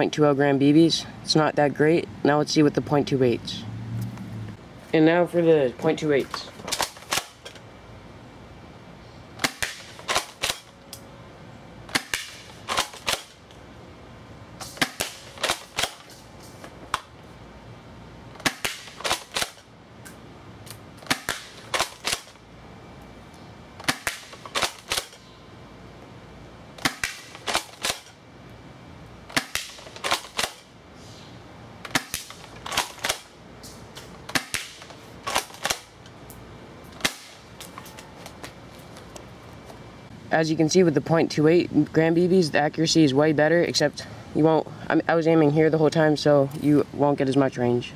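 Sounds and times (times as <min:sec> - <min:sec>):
airsoft shotgun pumping and firing: 0:06.6 - 0:07.6, 0:09.4 - 0:10.7, 0:11.9 - 0:13.4, 0:14.6 - 0:16.2, 0:18.4 - 0:19.6, 0:21.0 - 0:22.4, 0:23.8 - 0:25.2, 0:26.8 - 0:28.2, 0:29.3 - 0:30.7, 0:31.9 - 0:33.3, 0:34.0 - 0:35.9.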